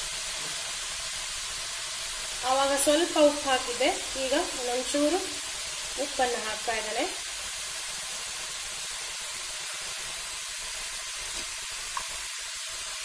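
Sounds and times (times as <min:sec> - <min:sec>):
leaves sizzling in a pan: 0:00.0 - 0:13.0.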